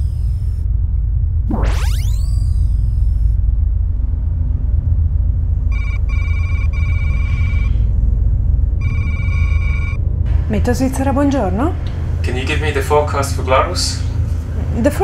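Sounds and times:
steady low rumble: 0.0 - 15.0
electronic telephone ringing: 5.7 - 7.8, 8.8 - 10.0.

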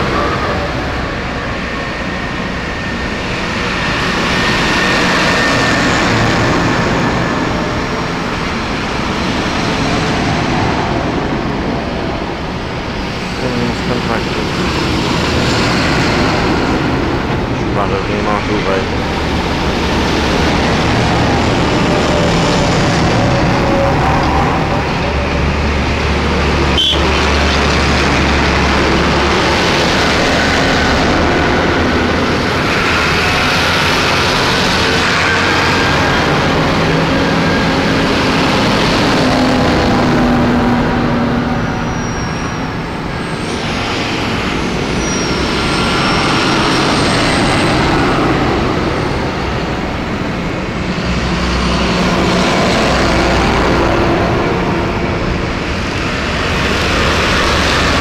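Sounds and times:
big tyres on road: 0.0 - 58.0
tractors driving past: 0.0 - 58.0.

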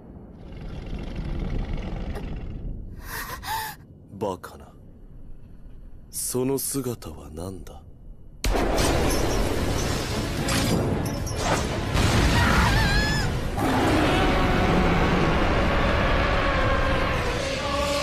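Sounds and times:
dense rumbling energy noise: 0.0 - 8.4.

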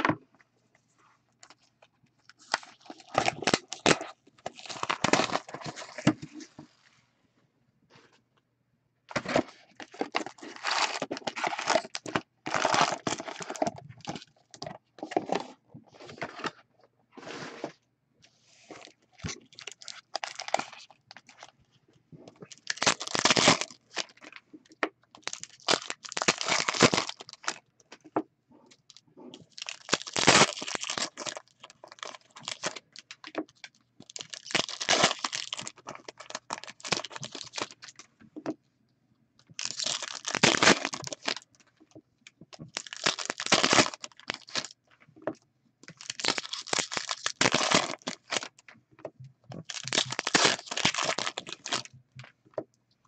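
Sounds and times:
wrappers crinkling and tearing: 2.3 - 6.0, 9.3 - 15.4, 19.2 - 21.5, 22.5 - 24.3, 25.2 - 27.6, 29.4 - 37.9, 39.5 - 41.4, 42.6 - 44.7, 45.9 - 48.5, 49.6 - 51.9.

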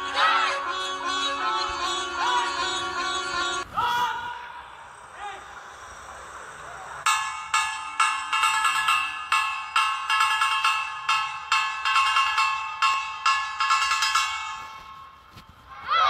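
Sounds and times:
metal bell struck repeatedly: 7.1 - 15.4.

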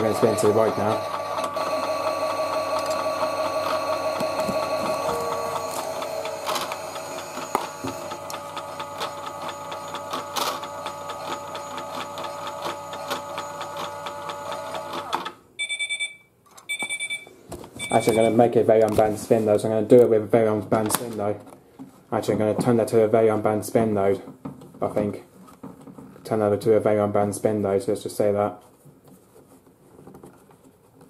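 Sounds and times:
small electric motor whining: 0.0 - 15.1.

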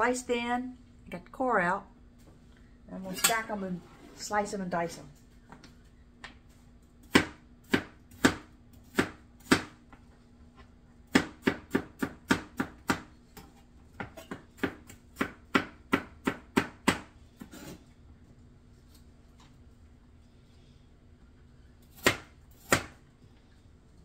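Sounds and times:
knife chopping on cutting board: 7.1 - 9.8, 11.1 - 13.1, 14.0 - 17.8, 21.9 - 23.0.

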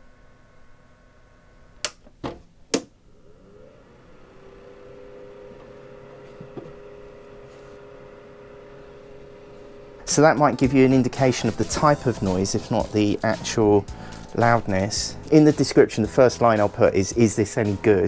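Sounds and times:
small fan whine: 0.0 - 11.6
dehumidifier fan hum: 0.0 - 15.6.

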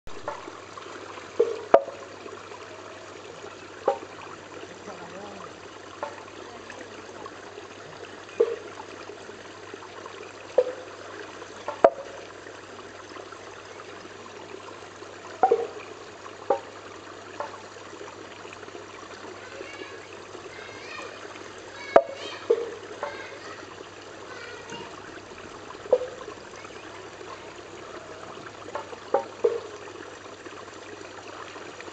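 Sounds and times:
bamboo water spout knocking: 0.1 - 2.5, 3.4 - 9.0, 10.4 - 12.4, 15.3 - 18.0, 19.1 - 30.1
garden stream trickling: 0.1 - 31.9.

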